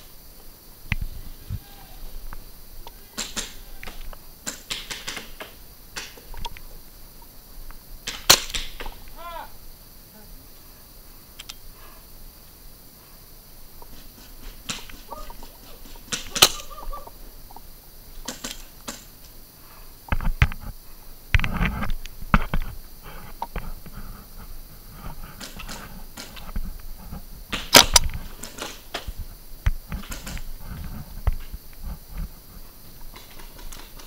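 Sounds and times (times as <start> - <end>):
paintball gun cracks: 3.2 - 6.6, 8.0 - 9.2, 16.1 - 16.7, 27.5 - 29.2, 30.0 - 30.5.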